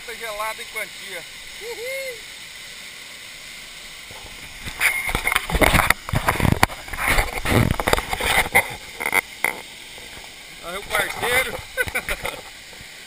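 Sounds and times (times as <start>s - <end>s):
waterfall rushing: 0.0s - 13.0s
water sloshing and splashing: 4.0s - 13.0s.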